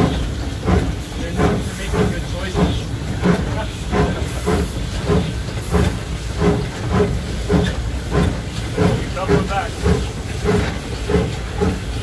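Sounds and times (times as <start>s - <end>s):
steam engine working beat: 0.0s - 12.0s
steam hissing: 0.0s - 12.0s.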